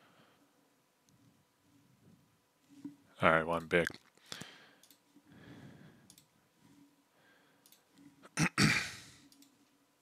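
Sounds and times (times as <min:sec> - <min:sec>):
computer mouse clicking: 0:03.5 - 0:05.1, 0:06.0 - 0:06.3, 0:07.6 - 0:08.1, 0:09.2 - 0:09.6.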